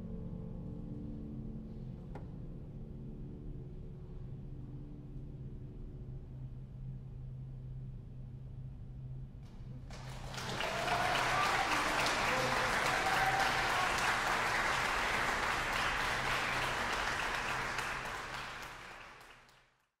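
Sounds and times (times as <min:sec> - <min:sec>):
audience applauding: 0:09.9 - 0:19.9.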